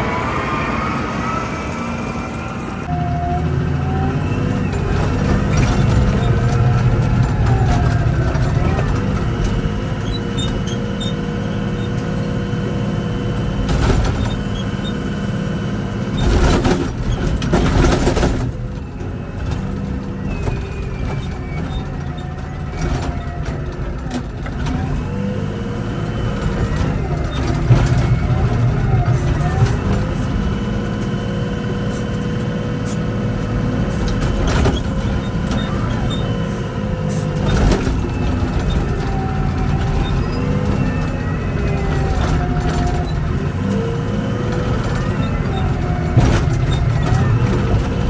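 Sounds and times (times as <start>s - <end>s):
loud rush of noise: 0.0s - 3.4s
diesel engine revving: 0.0s - 48.0s.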